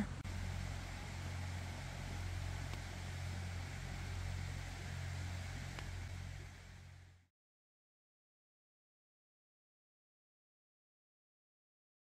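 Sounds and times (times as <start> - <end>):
even hiss: 0.0 - 7.3
steady low hum: 0.0 - 7.3
faint ticks: 2.6 - 2.9, 5.7 - 6.0.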